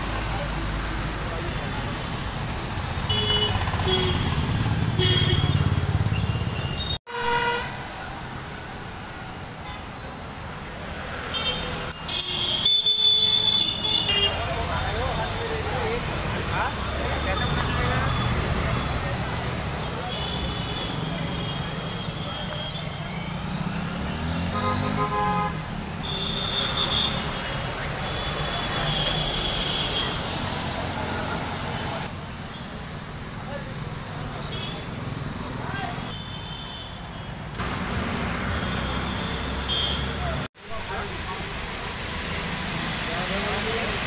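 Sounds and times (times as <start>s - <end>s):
traffic on a wet road: 0.0s - 44.0s
vehicle horn tooting: 3.1s - 7.8s, 11.3s - 14.5s, 24.5s - 30.2s, 38.5s - 40.3s.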